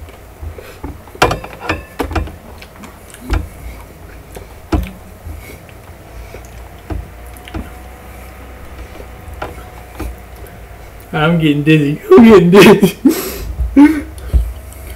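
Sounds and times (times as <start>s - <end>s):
body movement knocks and rustles: 0.0s - 11.1s.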